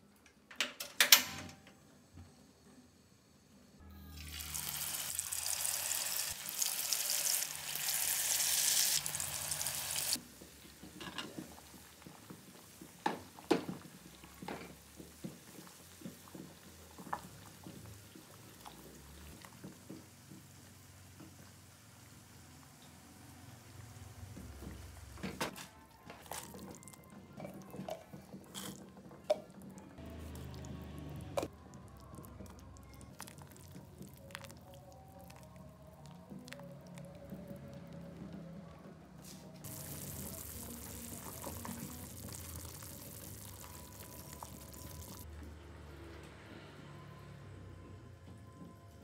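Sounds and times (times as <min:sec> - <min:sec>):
quiet background music: 0:00.0 - 0:49.0
soup boiling and bubbling: 0:04.2 - 0:21.6, 0:26.2 - 0:38.1, 0:39.6 - 0:45.3.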